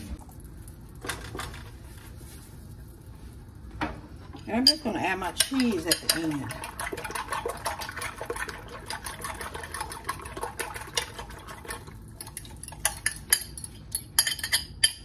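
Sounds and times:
utensil clinking glass bowl: 0:04.4 - 0:15.0.

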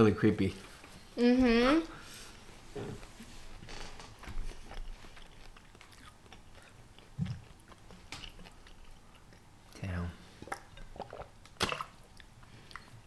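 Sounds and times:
wet chewing: 0:04.2 - 0:13.0.

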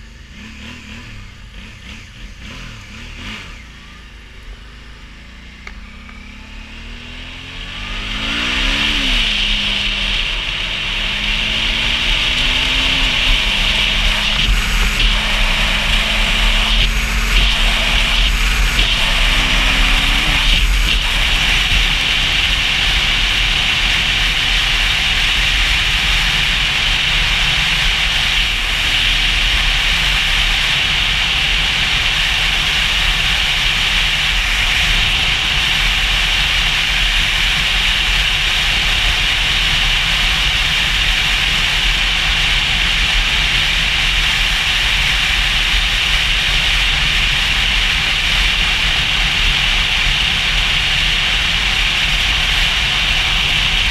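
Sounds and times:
motorcycle engine running: 0:00.0 - 0:53.9
wind rushing: 0:08.4 - 0:24.4.

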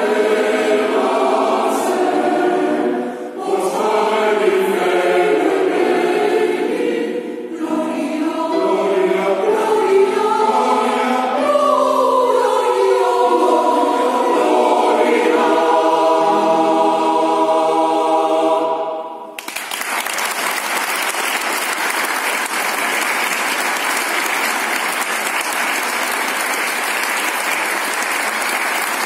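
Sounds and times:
choir holding a chord: 0:00.0 - 0:19.4
audience applauding: 0:19.4 - 0:29.0.

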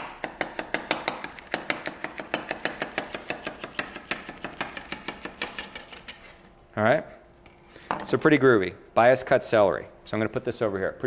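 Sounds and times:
knife chopping on cutting board: 0:00.0 - 0:05.8.

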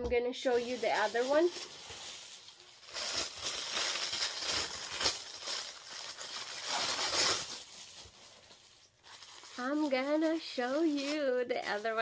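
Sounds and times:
tissue paper rustling: 0:00.4 - 0:12.0.

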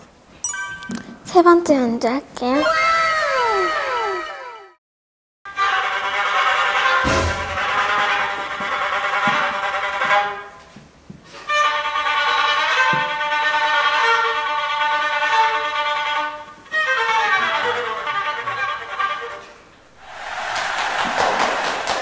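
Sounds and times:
child playing violin: 0:05.6 - 0:07.0, 0:07.6 - 0:10.6, 0:11.5 - 0:19.5.

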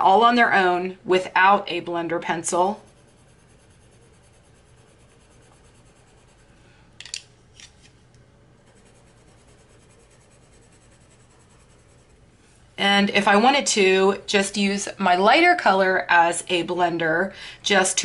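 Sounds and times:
pencil scratching on paper: 0:02.7 - 0:06.6, 0:08.6 - 0:12.3.

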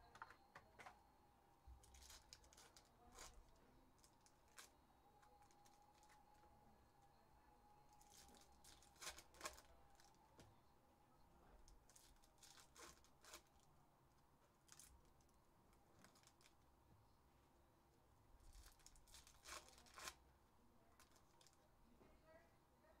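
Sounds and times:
card wrappers tearing: 0:01.9 - 0:03.4, 0:08.0 - 0:10.1, 0:11.9 - 0:13.7, 0:18.5 - 0:20.2
cards being handled: 0:18.6 - 0:20.2.

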